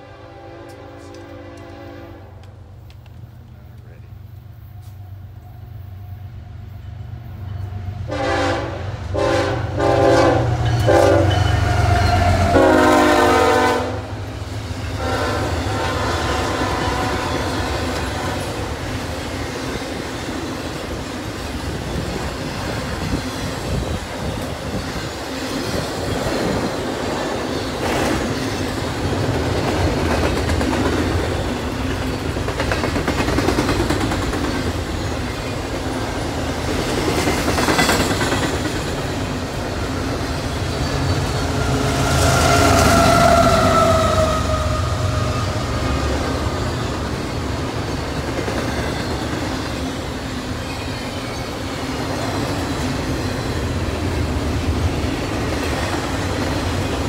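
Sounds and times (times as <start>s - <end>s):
locomotive air horn blasts: 0.0s - 2.4s, 8.1s - 14.2s, 15.0s - 18.7s, 41.7s - 45.6s.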